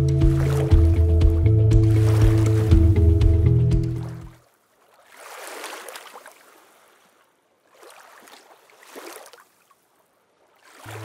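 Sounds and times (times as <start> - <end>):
ocean waves washing: 0.0 - 4.4, 10.6 - 11.0.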